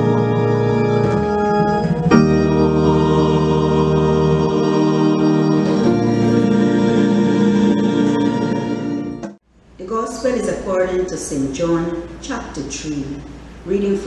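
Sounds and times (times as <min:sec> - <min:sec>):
organ chords: 0:00.0 - 0:09.4
choir singing a hymn: 0:01.6 - 0:09.3.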